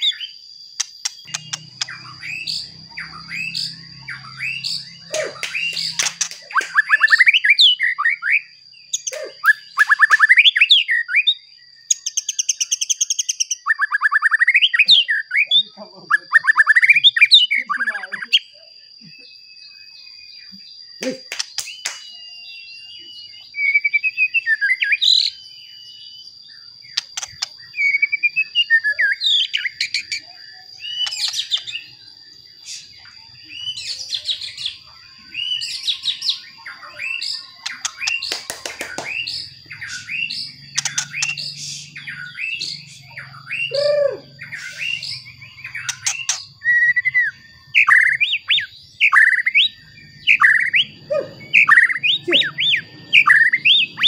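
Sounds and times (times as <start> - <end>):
steady high-pitched whine: 0.0 - 12.0
bird singing whistled phrases: 0.0 - 32.0, 32.6 - 54.0.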